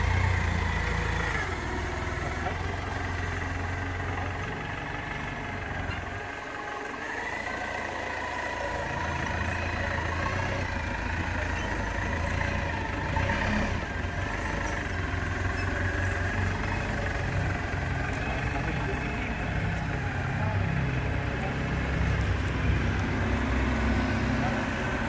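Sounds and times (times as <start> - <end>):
forklift engine running: 0.0 - 25.0
high engine whine: 0.0 - 25.0.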